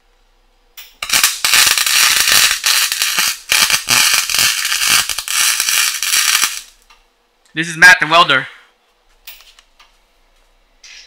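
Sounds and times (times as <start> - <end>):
welder arc crackling: 0.8 - 6.9.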